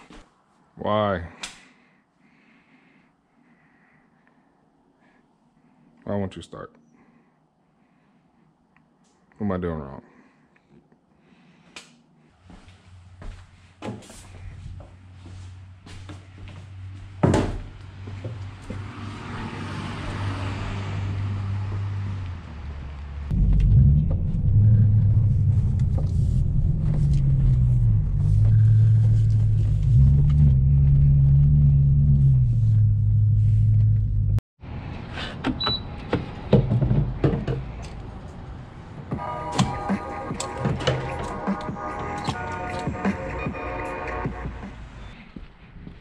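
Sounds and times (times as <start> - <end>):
car engine accelerating: 18.0 - 34.4.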